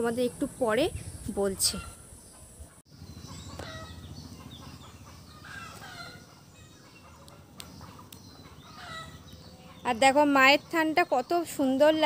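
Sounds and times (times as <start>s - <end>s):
chickens clucking: 1.6s - 9.8s.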